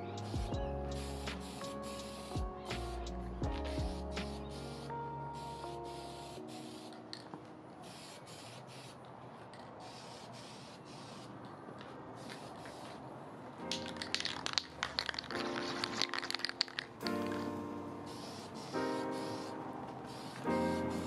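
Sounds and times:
music: 0.0s - 7.6s, 13.6s - 21.0s
aerosol spray can hissing: 0.2s - 11.5s, 12.2s - 13.0s, 13.7s - 21.0s.

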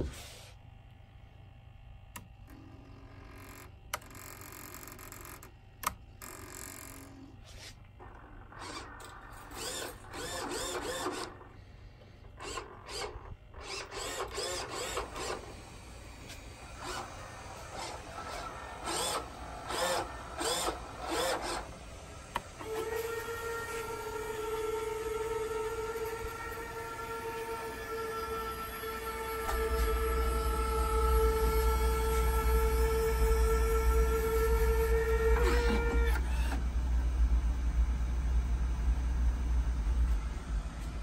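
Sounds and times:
small motors whining: 6.2s - 11.7s, 12.3s - 36.7s.

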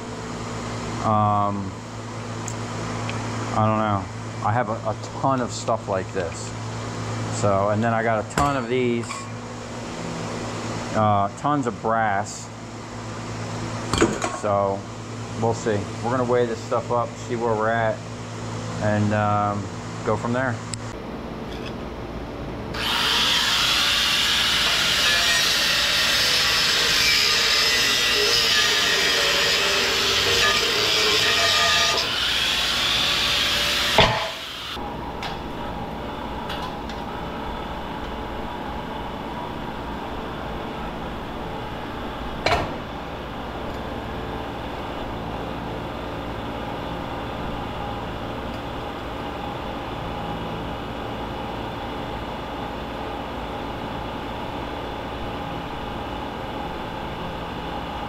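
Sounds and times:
steady machine hum: 0.0s - 58.0s
loud power tool running: 22.7s - 34.8s.

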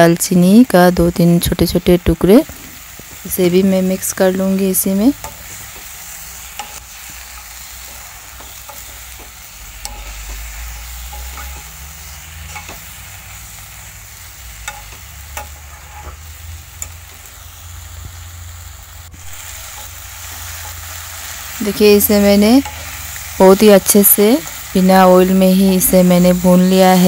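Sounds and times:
food sizzling: 0.0s - 27.0s
spoon stirring and scraping in wok: 4.8s - 18.2s, 19.1s - 23.7s.

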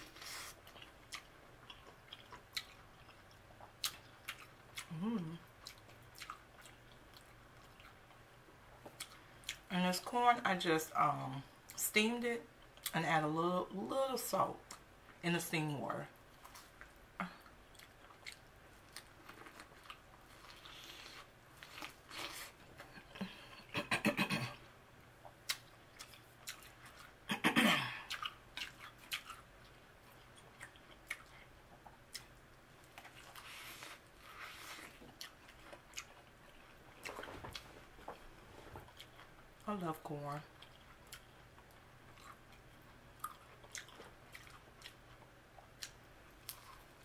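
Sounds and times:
wet chewing: 0.0s - 8.2s, 16.3s - 23.5s, 25.2s - 27.2s, 28.0s - 38.2s, 40.6s - 46.9s.

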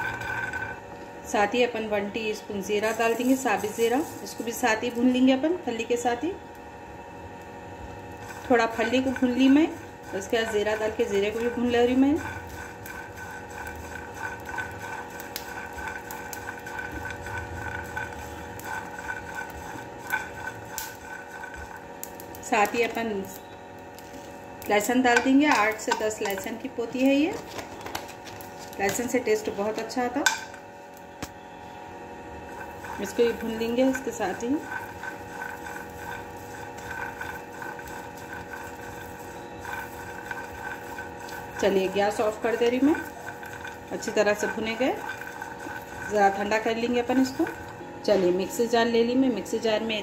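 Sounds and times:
nuts rattling in frying pan: 0.0s - 6.2s, 7.4s - 30.7s, 32.3s - 47.8s
background hum: 0.0s - 50.0s.

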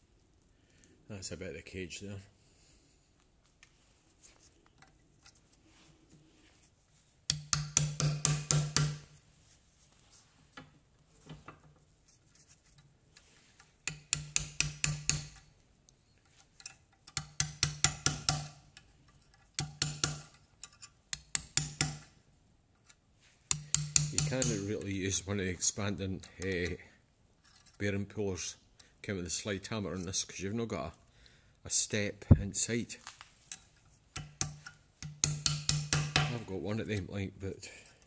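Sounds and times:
slide hammer metal strikes: 7.3s - 9.1s, 13.9s - 15.4s, 17.2s - 18.6s, 23.5s - 24.7s, 34.2s - 36.4s.

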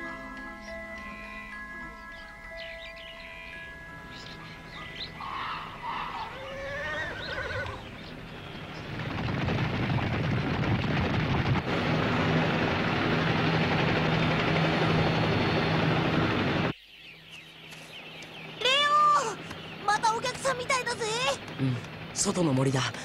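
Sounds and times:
wavering animal cries: 0.0s - 8.0s
running hooves rumbling: 0.0s - 22.4s.

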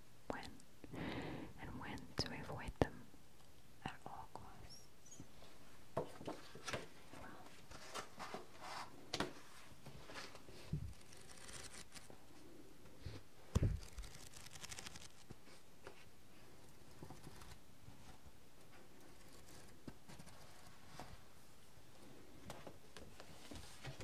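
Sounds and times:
book pages rustling and turning: 6.1s - 12.2s, 13.0s - 16.1s, 22.5s - 24.0s.

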